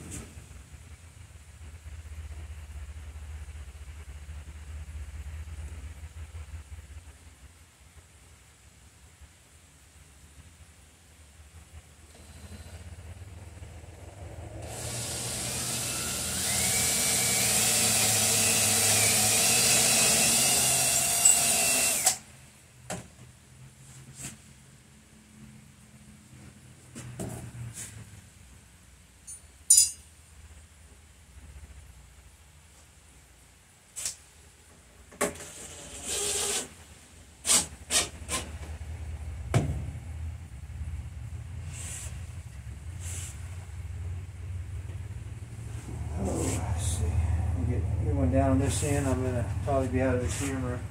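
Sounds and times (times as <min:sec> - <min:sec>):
cordless drill running: 0:14.6 - 0:22.2
low steady hum: 0:38.6 - 0:50.9.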